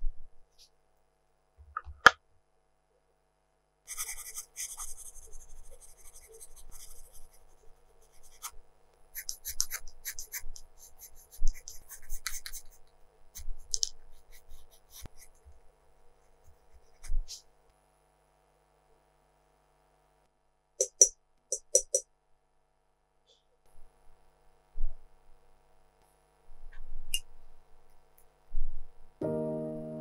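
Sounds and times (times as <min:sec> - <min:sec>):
pencil scratching on paper: 0:03.9 - 0:15.5, 0:16.1 - 0:17.4.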